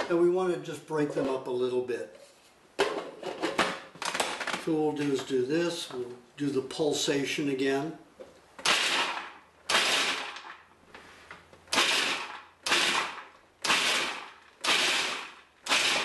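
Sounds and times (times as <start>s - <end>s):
food processor chopping nuts: 8.7s - 10.6s, 11.7s - 16.0s.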